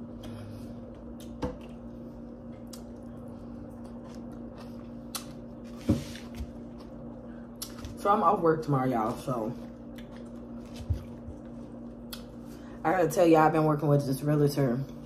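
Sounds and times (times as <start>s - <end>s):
steady low hum: 0.0s - 15.0s
crunchy chewing: 0.2s - 7.9s, 9.7s - 12.5s.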